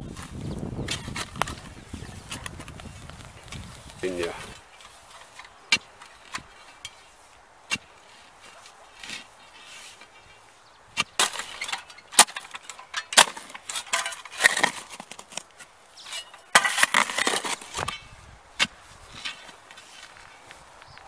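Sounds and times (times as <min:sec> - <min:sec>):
spade scraping earth: 0:00.0 - 0:21.0
metal bar striking ground: 0:11.0 - 0:15.4, 0:16.0 - 0:19.8.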